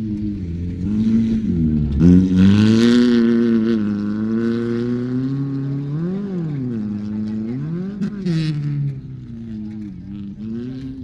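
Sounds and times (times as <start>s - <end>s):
car engine revving hard: 0.9s - 8.8s.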